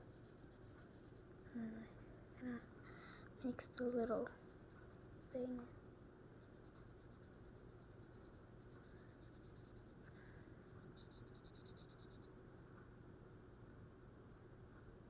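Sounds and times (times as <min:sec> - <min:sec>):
marker scribbling on sticker: 0:00.0 - 0:01.2, 0:03.8 - 0:05.4, 0:06.4 - 0:09.9, 0:10.8 - 0:12.3.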